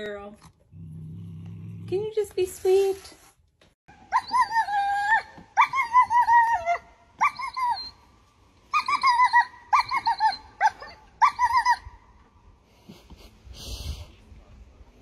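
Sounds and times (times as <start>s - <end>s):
dog whining: 4.1s - 8.1s, 8.7s - 12.0s.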